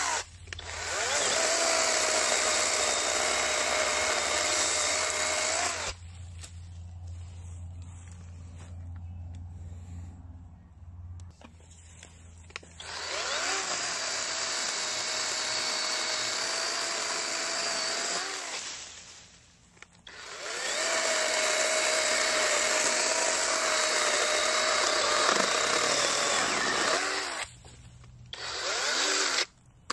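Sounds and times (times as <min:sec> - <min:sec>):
electric chainsaw cutting branch: 0:00.0 - 0:06.0, 0:12.8 - 0:19.3, 0:20.1 - 0:27.5, 0:28.3 - 0:29.5.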